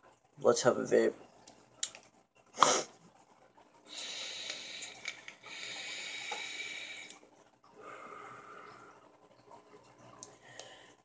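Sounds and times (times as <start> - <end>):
hissing draw through vape: 3.9 - 7.2.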